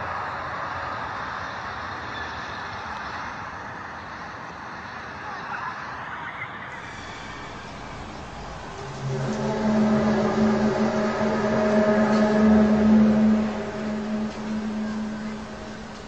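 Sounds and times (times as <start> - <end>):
rumbling roar: 6.8 - 16.0.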